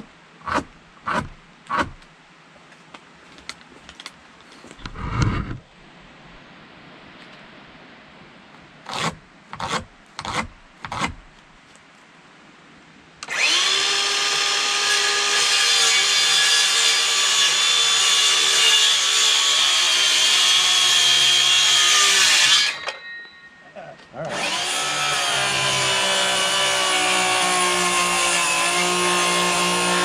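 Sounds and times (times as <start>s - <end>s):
circular saw cutting wood: 8.9s - 11.1s, 13.3s - 23.0s, 24.3s - 30.0s.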